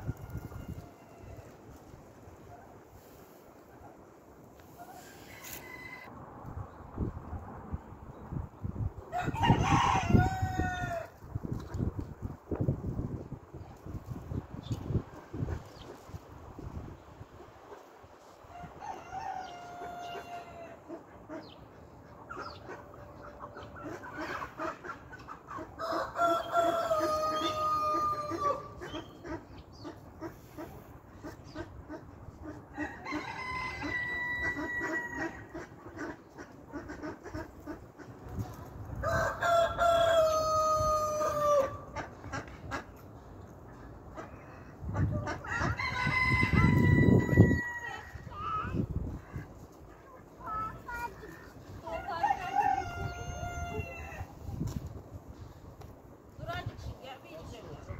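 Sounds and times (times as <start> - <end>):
rooster crowing: 5.0 - 6.1, 9.1 - 11.0, 25.8 - 28.7, 32.8 - 35.3, 39.0 - 41.8, 45.5 - 48.2, 52.1 - 54.3.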